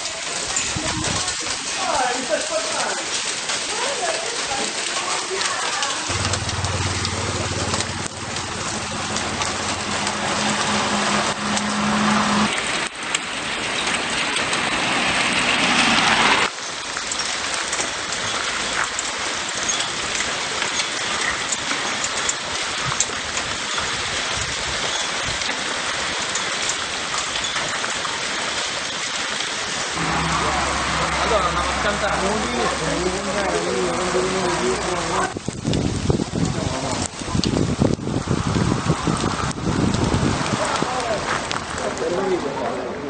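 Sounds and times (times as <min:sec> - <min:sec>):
stones and ash pattering: 0:00.0 - 0:42.7
low hum: 0:06.1 - 0:12.5, 0:30.0 - 0:33.0.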